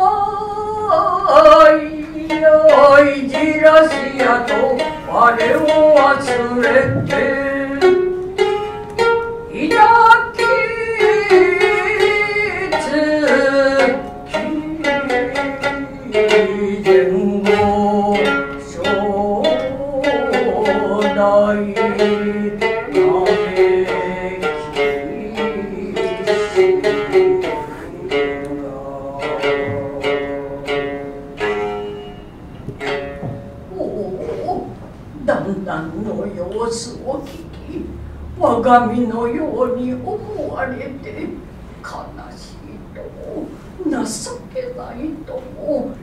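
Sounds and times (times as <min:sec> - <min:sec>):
person chanting wavering vowels: 0:00.0 - 0:08.6, 0:09.5 - 0:31.1
plucked shamisen strokes: 0:01.2 - 0:35.2.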